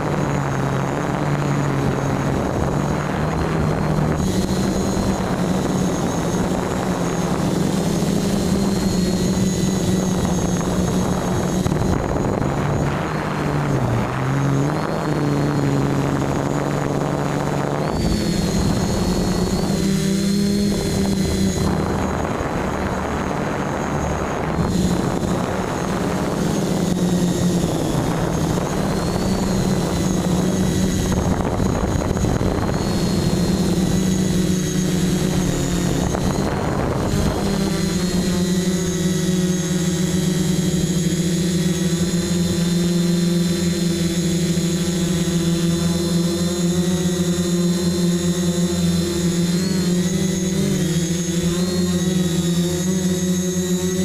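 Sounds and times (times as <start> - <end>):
quadcopter motors buzzing whine: 0.0 - 54.0.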